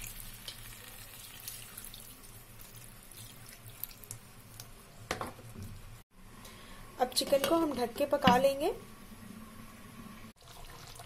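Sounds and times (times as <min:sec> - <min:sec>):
water pouring into a pan: 0:00.0 - 0:04.2, 0:10.4 - 0:11.0.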